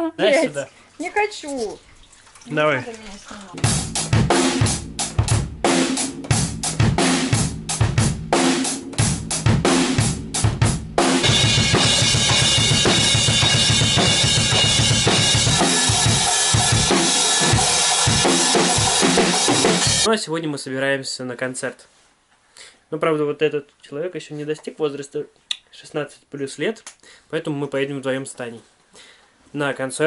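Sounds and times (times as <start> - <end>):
drum kit playing: 3.6 - 20.1
cymbals ringing: 11.2 - 20.1.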